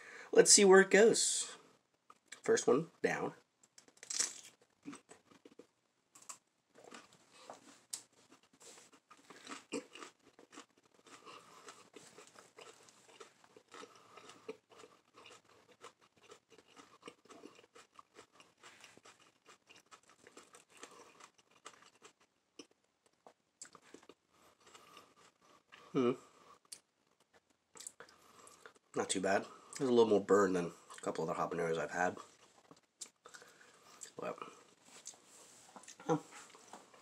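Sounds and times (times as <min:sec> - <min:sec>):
chewing pepper crunching: 0:03.8 - 0:29.9, 0:32.1 - 0:35.2.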